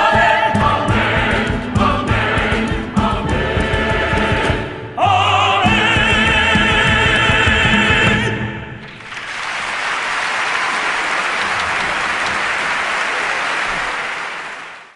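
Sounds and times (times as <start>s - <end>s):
singing with instruments: 0.0s - 8.8s
audience applause: 8.9s - 14.9s.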